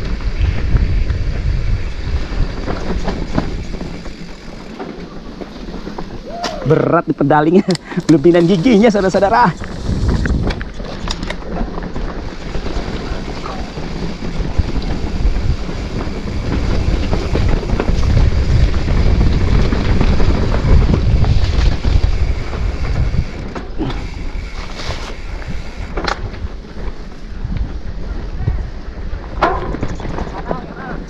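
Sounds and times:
mountain bike rattling on rocks: 0.0 - 31.0
wind buffeting microphone: 0.0 - 31.0.

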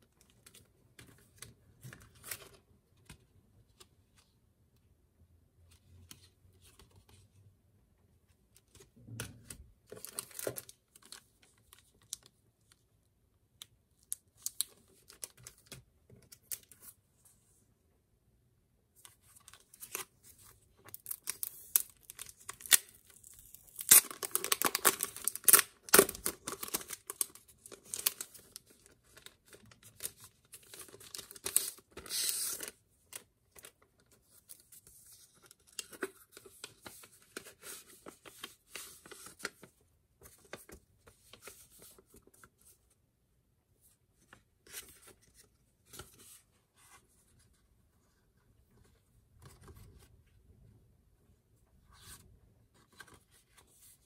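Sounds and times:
plastic packaging crinkling: 21.0 - 28.3.

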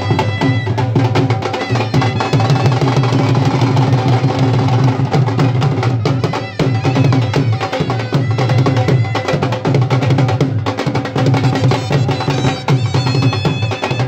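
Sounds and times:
dhol drums beating: 0.0 - 14.0
wind instrument melody: 0.0 - 14.0.

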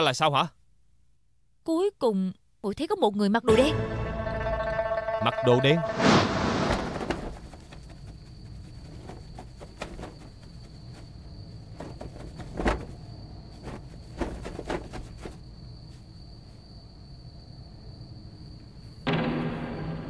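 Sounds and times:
crickets chirping: 4.3 - 20.0
soft knocks and rustles: 6.9 - 15.4.

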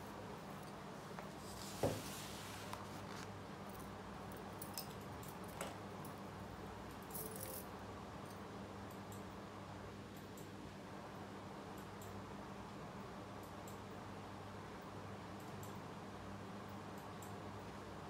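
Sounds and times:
handling knocks and rustles: 1.1 - 3.3.

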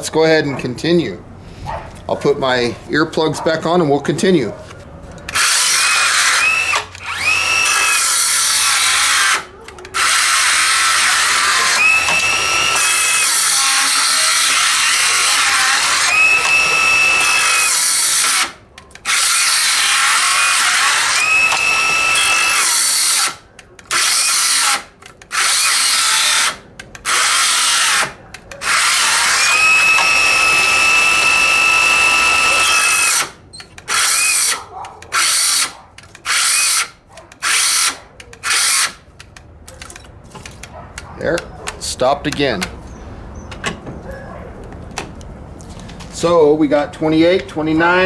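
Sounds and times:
circular saw cutting wood: 5.3 - 39.0.

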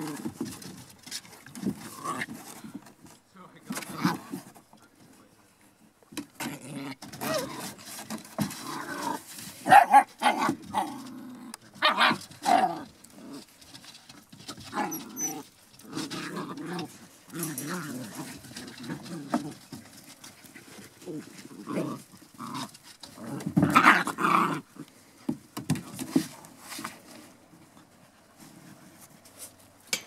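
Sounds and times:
puppies growling: 0.0 - 2.8, 6.4 - 25.2.

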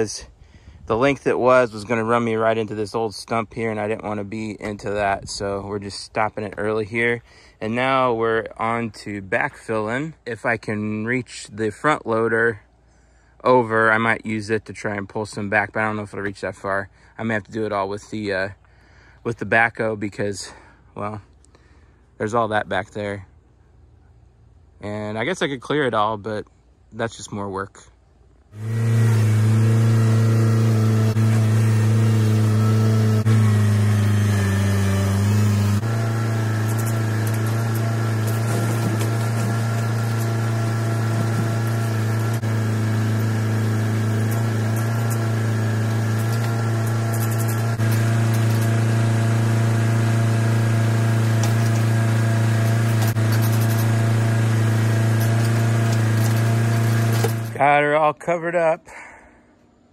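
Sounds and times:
backhoe dragging dirt: 28.6 - 57.7
tractor engine running: 28.6 - 57.7.

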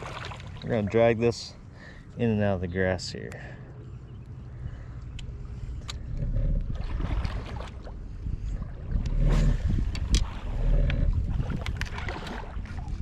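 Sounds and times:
water lapping against boat hull: 0.0 - 2.0, 4.2 - 13.0
wind buffeting microphone: 4.6 - 13.0.

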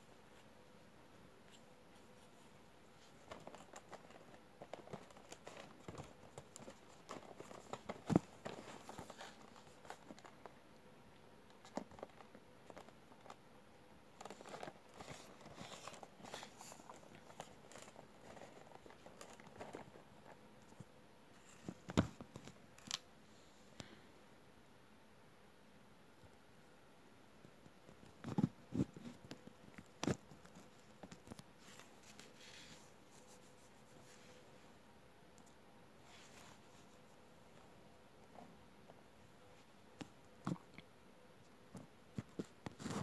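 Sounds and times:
cardboard box rustling: 3.0 - 10.3, 14.2 - 20.0.

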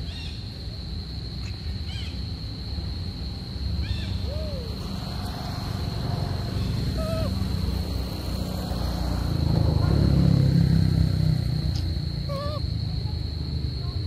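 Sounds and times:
high-pitched insect trill: 0.0 - 14.0
short squeaky calls: 6.6 - 7.4.

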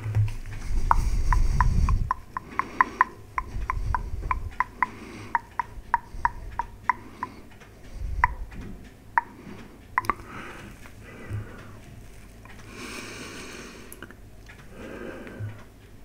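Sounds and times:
breath puffs into microphone: 0.4 - 5.4
tongue clicks: 0.9 - 9.4, 10.0 - 10.9, 13.9 - 14.2.

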